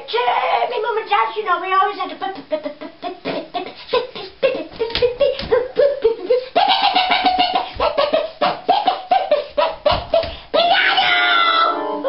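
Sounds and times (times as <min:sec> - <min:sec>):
electronic keyboard melody: 0:11.6 - 0:12.0.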